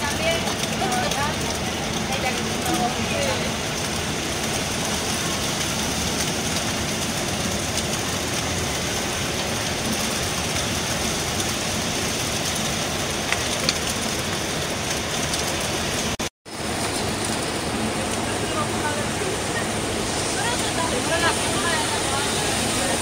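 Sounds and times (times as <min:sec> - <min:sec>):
bus rumbling through traffic: 0:00.0 - 0:23.0
heavy rain: 0:00.0 - 0:23.0.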